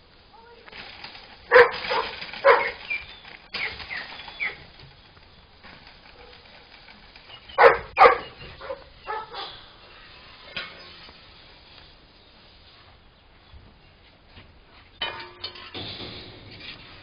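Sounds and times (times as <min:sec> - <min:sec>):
dogs barking: 0:01.5 - 0:03.0, 0:07.5 - 0:09.6.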